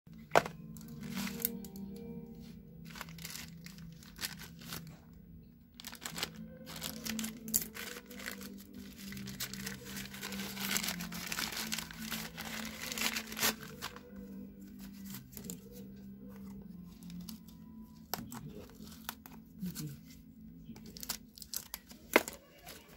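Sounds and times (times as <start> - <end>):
background music: 0.1 - 22.9
plastic mailer crinkling and tearing: 0.3 - 1.8, 2.8 - 5.1, 5.8 - 14.2, 20.8 - 22.9.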